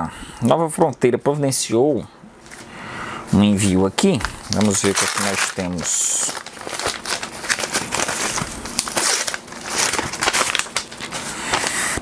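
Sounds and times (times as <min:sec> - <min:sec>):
wrapping tearing and crumpling: 0:04.3 - 0:12.0.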